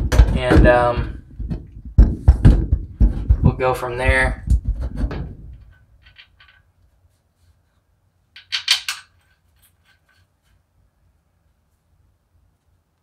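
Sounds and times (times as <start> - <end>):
metallic clinks of bolts: 8.4 - 9.3.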